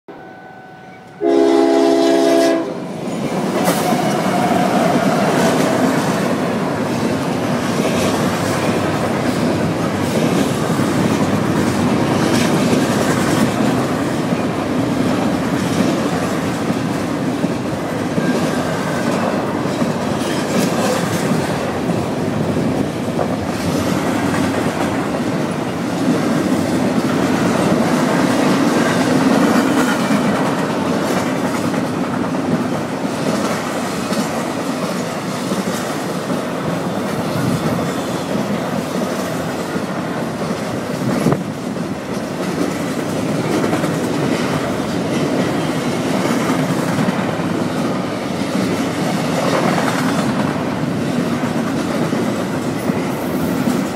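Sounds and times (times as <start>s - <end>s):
locomotive horn blast: 0.1s - 2.9s
train wheels rumbling on rails: 1.2s - 53.9s.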